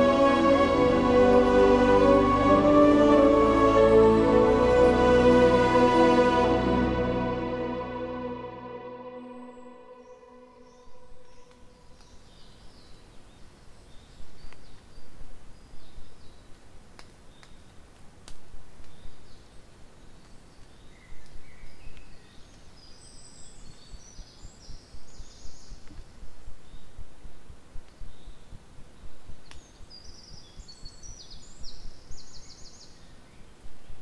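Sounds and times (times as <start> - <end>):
small birds chirping: 9.5 - 17.8, 18.8 - 34.0
faint clicks: 16.5 - 19.1
wind rumbling on microphone: 23.6 - 32.5.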